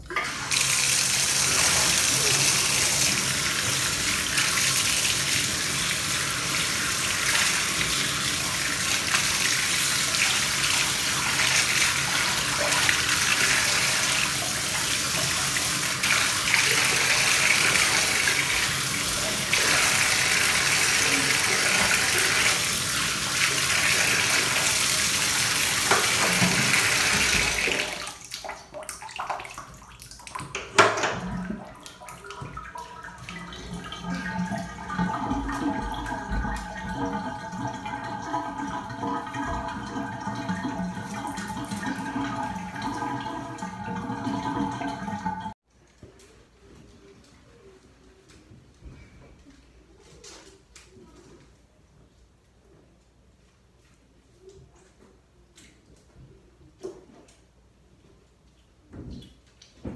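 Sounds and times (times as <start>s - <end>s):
faucet water running: 0.0s - 45.6s.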